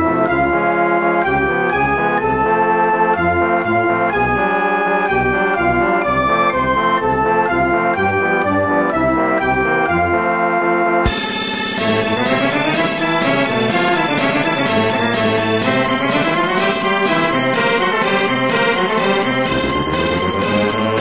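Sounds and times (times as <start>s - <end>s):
organ-like keyboard melody: 0.0s - 21.0s
pulsing bass line: 11.1s - 21.0s.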